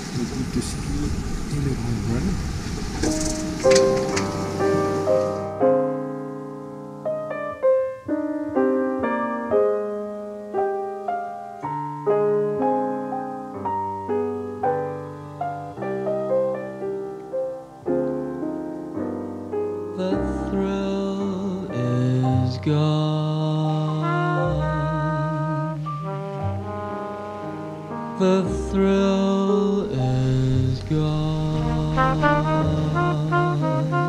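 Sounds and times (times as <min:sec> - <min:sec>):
piano melody: 0:02.8 - 0:34.0
other instruments: 0:24.0 - 0:28.9.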